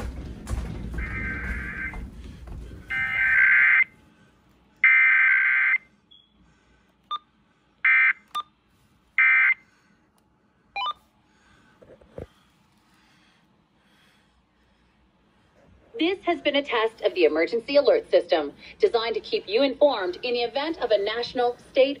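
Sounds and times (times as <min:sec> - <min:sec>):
buzzing alert data tones: 0:01.0 - 0:02.0.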